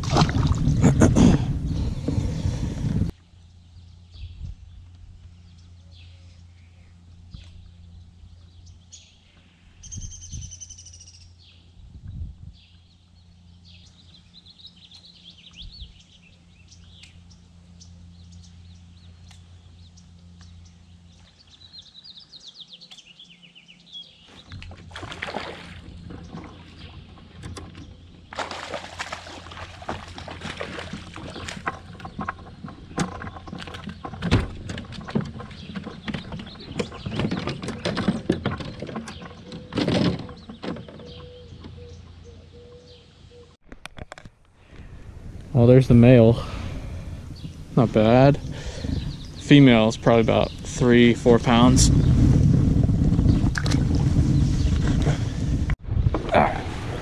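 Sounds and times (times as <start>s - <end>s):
fish splashing in water: 0.0s - 0.7s, 24.7s - 26.7s, 28.3s - 32.5s
wild birds calling: 0.2s - 11.8s, 12.6s - 43.6s, 44.6s - 52.2s
steady low hum: 44.4s - 57.0s.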